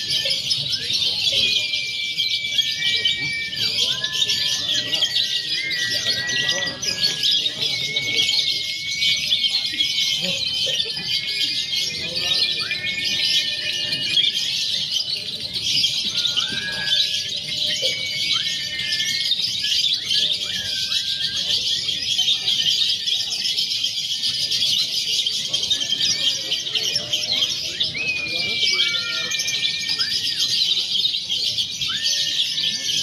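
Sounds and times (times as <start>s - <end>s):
lovebirds chattering and trilling: 0.0s - 33.0s
whistled bird notes: 0.0s - 33.0s.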